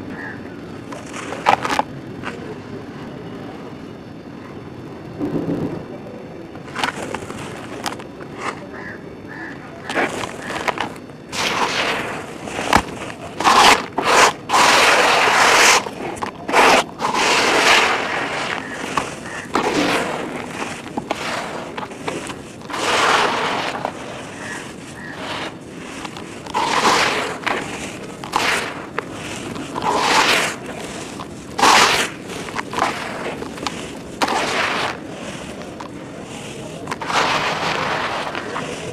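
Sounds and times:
hands crumbling dry dirt: 9.8s - 38.9s.

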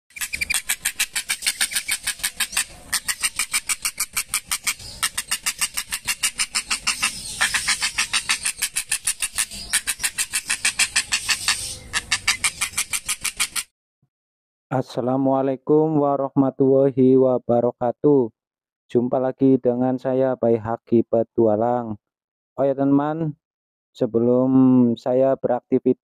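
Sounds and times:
heron chattering call: 0.1s - 13.7s.

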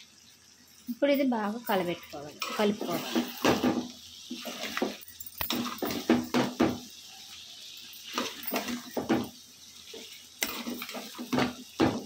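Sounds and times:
metal spoon scraping a metal pot: 2.4s - 3.6s.

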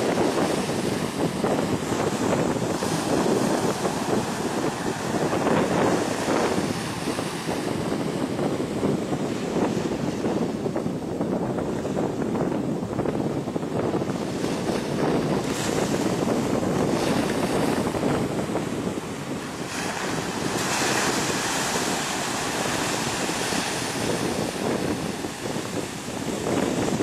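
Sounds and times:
sea surf breaking: 0.0s - 10.7s, 13.7s - 27.0s
wind rumbling on microphone: 0.0s - 27.0s.

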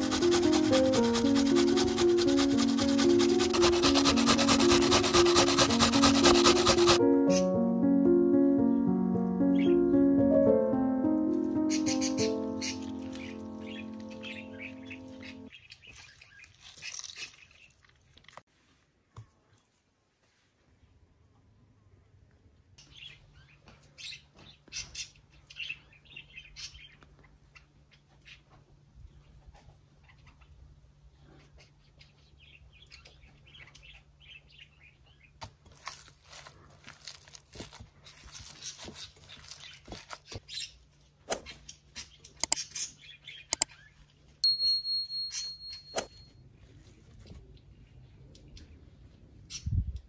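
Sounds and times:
small birds chirping: 8.6s - 10.1s, 11.6s - 17.8s, 22.8s - 35.4s, 38.1s - 46.0s
hands kneading minced meat: 35.4s - 41.1s
sharp mouse clicks: 42.4s - 42.7s
high ringing notification bell: 44.4s - 46.3s.

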